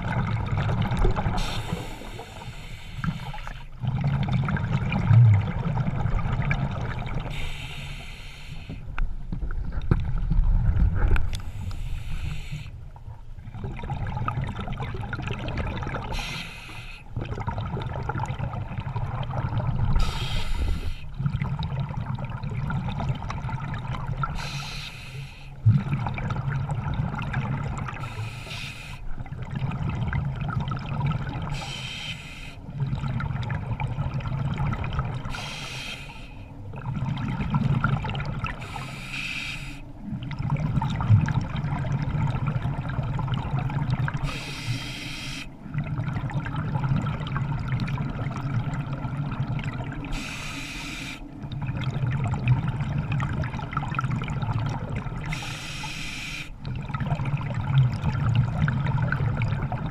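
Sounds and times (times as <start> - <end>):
water sloshing and gurgling: 0.0 - 59.9.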